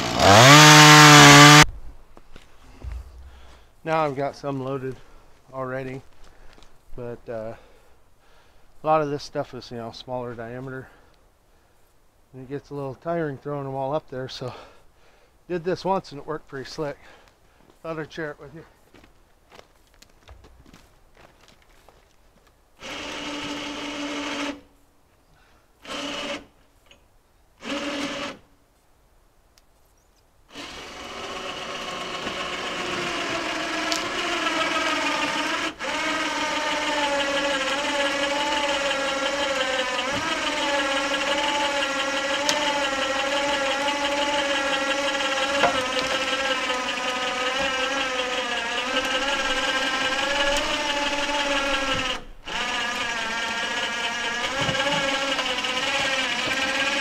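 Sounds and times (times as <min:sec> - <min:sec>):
log hoist motor running: 0:00.0 - 0:01.7, 0:22.8 - 0:24.6, 0:25.8 - 0:26.5, 0:27.6 - 0:28.4, 0:30.5 - 0:57.0.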